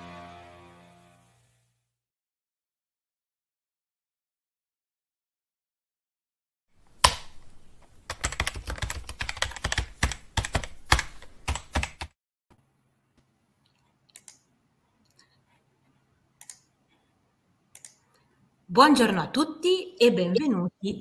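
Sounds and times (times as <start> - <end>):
rapid keyboard-like clicking: 8.1 - 12.1.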